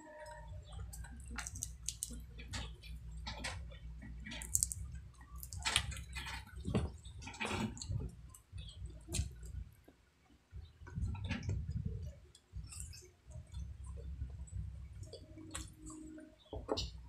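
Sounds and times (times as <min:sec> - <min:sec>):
low steady hum: 0:00.0 - 0:17.0
chewing crispy food: 0:00.2 - 0:09.5.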